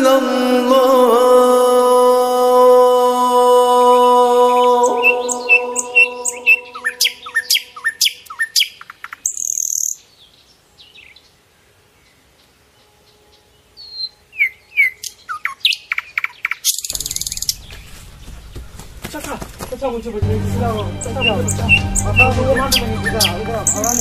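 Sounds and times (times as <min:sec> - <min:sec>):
small birds chirping: 0:04.5 - 0:20.1, 0:21.0 - 0:24.0
rushing noise: 0:16.9 - 0:24.0.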